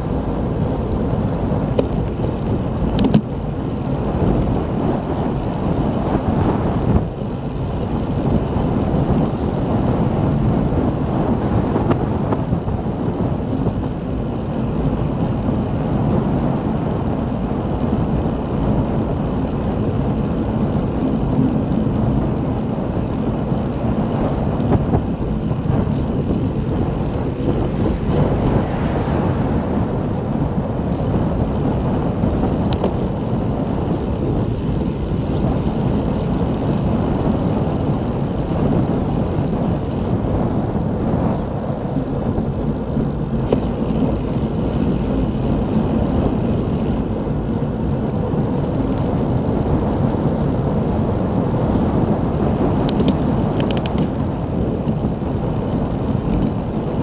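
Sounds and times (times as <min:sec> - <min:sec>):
wind noise on microphone: 0:00.0 - 0:57.0.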